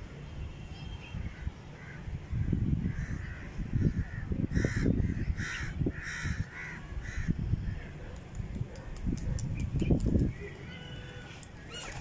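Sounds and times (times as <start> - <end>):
wind rumble on microphone: 1.1 - 12.0
crow cawing: 4.1 - 7.4.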